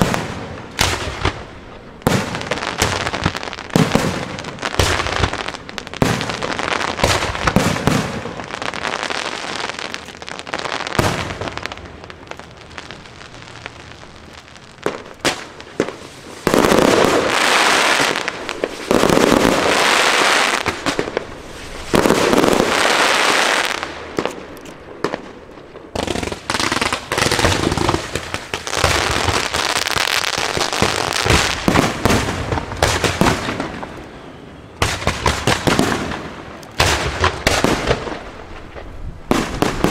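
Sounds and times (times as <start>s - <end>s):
fireworks bangs: 0.0s - 39.9s
fireworks crackling: 0.0s - 39.9s.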